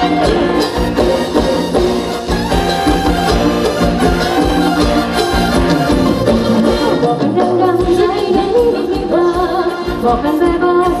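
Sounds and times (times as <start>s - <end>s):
steady drum beat: 0.0s - 10.6s
dance music with singing: 6.5s - 11.0s.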